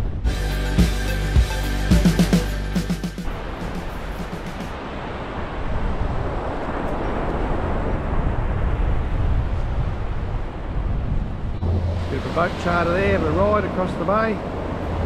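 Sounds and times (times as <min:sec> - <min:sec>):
outdoor rushing noise: 0:02.9 - 0:06.7, 0:11.2 - 0:15.0
heavy low rumble: 0:11.4 - 0:15.0.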